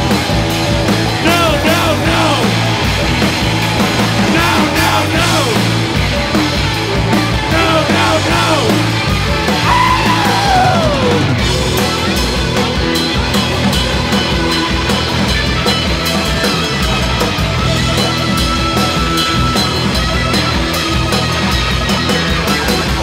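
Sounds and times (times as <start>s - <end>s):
loud punk band playing: 0.0s - 23.0s
person yelling vocals: 1.2s - 2.6s, 4.3s - 5.7s, 7.5s - 8.9s, 9.6s - 11.3s.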